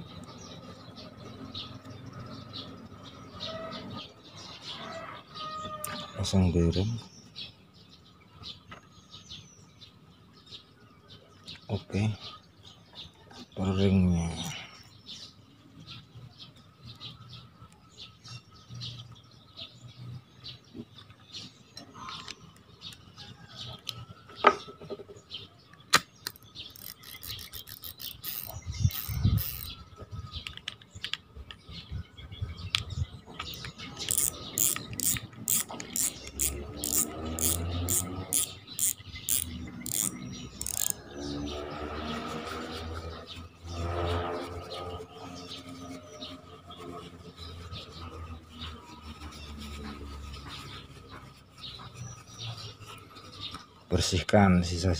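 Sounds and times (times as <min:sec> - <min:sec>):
quick even reel clicks: 0:26.2 - 0:29.7, 0:33.5 - 0:41.0.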